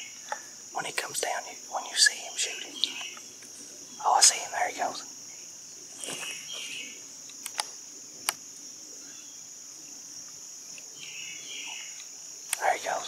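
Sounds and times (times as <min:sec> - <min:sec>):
insects chorus: 0:00.0 - 0:13.0
small sharp clicks: 0:07.2 - 0:08.4.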